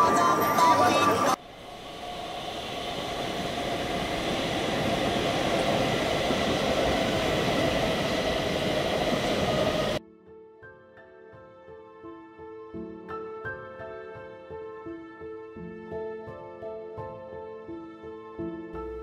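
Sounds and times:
train rumbling: 0:00.0 - 0:10.0
gentle music: 0:10.0 - 0:19.0.

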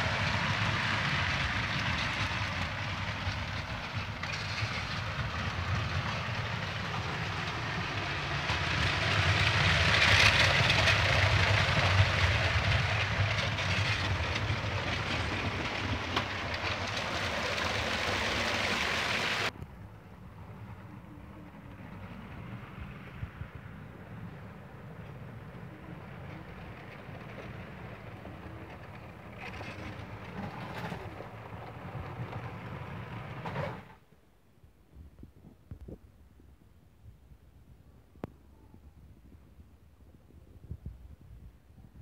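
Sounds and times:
wheels on rails: 0:00.0 - 0:19.6, 0:20.4 - 0:34.0.

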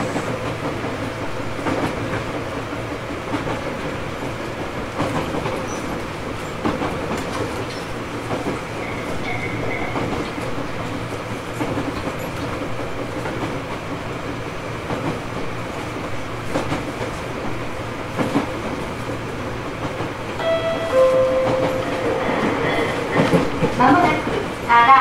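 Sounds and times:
rail-joint clicks: 0:00.0 - 0:14.0, 0:18.1 - 0:24.7
train wheels rumbling on rail: 0:00.0 - 0:25.0
ringing tone: 0:20.4 - 0:23.0.

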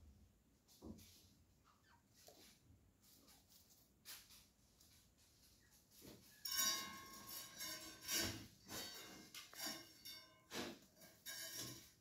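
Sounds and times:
light clinks and knocks: 0:06.1 - 0:12.0.

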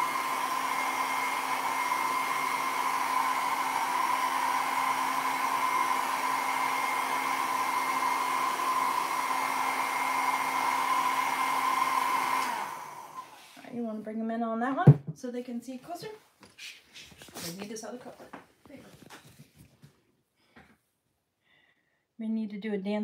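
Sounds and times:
hair dryer running: 0:00.0 - 0:13.8.

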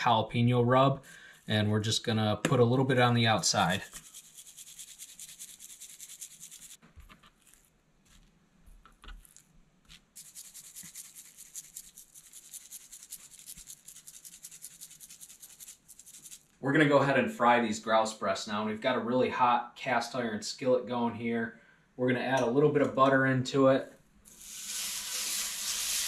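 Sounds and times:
spice grinder grinding: 0:03.5 - 0:08.2, 0:08.9 - 0:16.5, 0:24.3 - 0:26.0.

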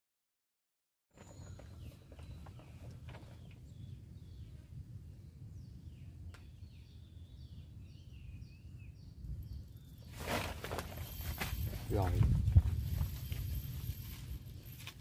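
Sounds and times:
bird chirping: 0:01.1 - 0:10.2.

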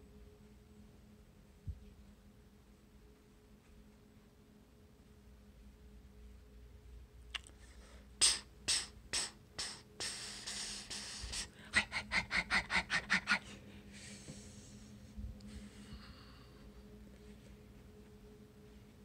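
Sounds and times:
person panting: 0:07.6 - 0:17.0
person exhaling: 0:07.7 - 0:11.8
person puffing breath: 0:07.7 - 0:14.7.

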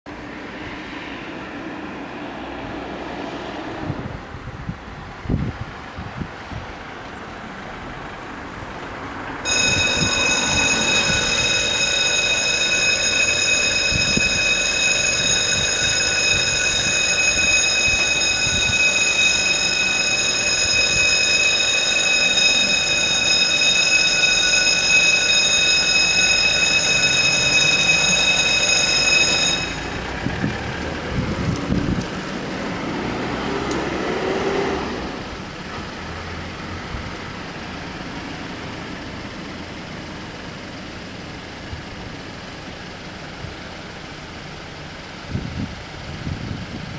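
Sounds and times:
traffic noise: 0:00.1 - 0:46.9
level-crossing warning bells: 0:09.4 - 0:34.0, 0:34.9 - 0:45.3.

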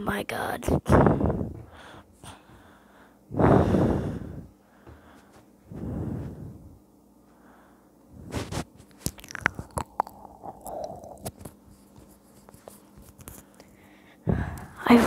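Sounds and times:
person breathing out hard: 0:01.1 - 0:06.6.

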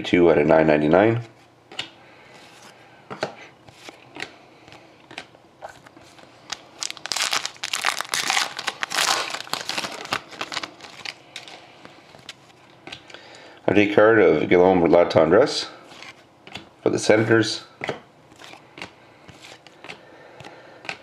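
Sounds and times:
foil wrapper crinkling: 0:06.4 - 0:12.4.

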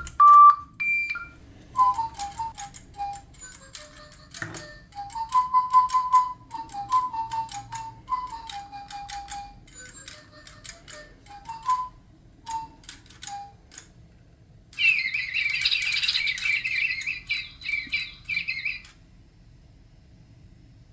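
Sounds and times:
toy birds whistled notes: 0:00.0 - 0:13.6, 0:14.8 - 0:18.9
sharp clicks: 0:12.5 - 0:14.0
rapid high chirps: 0:14.8 - 0:18.9.

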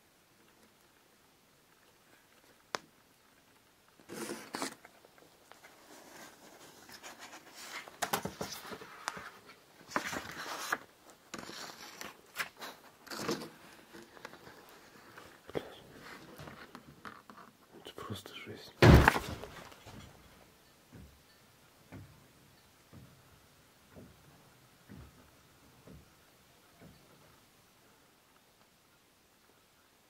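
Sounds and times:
handling noise rustling: 0:03.5 - 0:17.6, 0:18.8 - 0:20.5.

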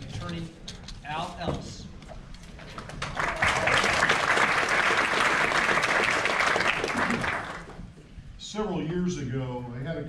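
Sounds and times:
audience applauding: 0:02.8 - 0:07.8.

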